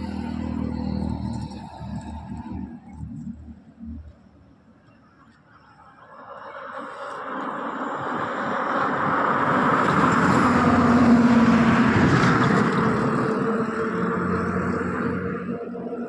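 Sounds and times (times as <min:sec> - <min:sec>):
vehicle passing by: 0:00.0 - 0:04.3, 0:06.6 - 0:16.0.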